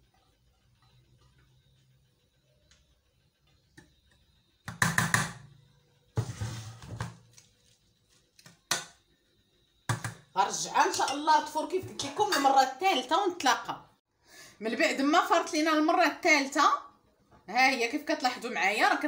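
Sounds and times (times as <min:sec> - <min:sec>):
metal pan rustling and scraping: 0:06.2 - 0:07.3.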